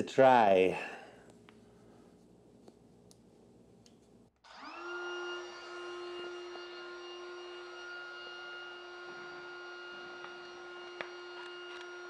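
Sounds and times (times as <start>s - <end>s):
trim router motor running: 4.4s - 12.0s.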